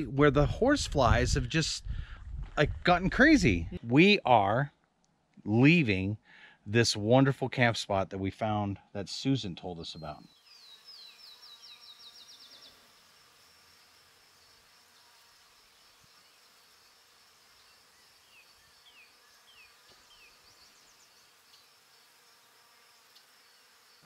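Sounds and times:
high insect buzz: 0:10.3 - 0:24.0.

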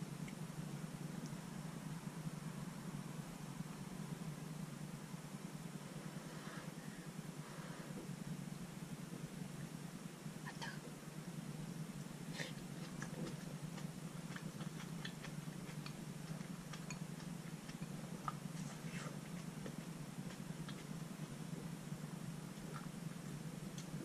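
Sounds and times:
steady low hum: 0:00.0 - 0:24.0
mouth sounds of eating: 0:12.0 - 0:24.0.

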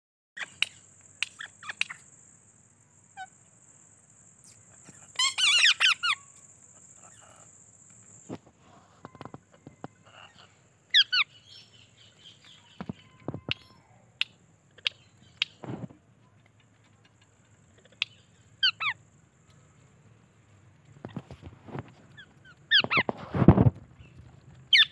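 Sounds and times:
parakeets squawking: 0:04.8 - 0:06.3, 0:10.0 - 0:11.6, 0:22.2 - 0:23.1.

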